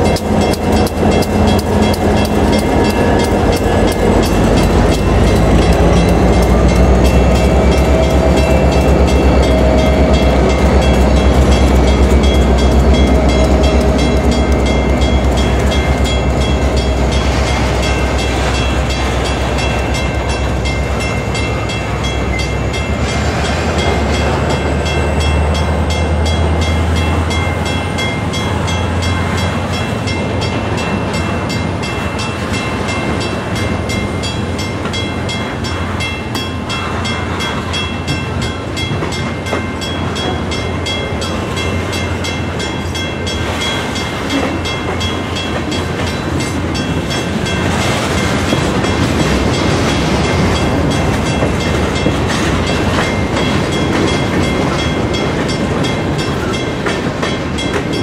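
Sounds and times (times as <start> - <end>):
freight train wheels rumbling on rail: 0.0 - 58.0.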